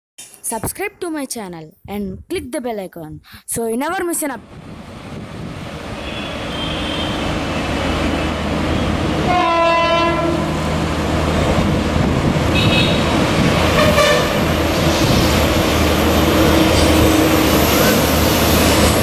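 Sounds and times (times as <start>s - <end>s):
train rumble: 4.4s - 19.0s
locomotive horn: 5.9s - 7.6s, 8.8s - 10.7s, 12.5s - 14.5s.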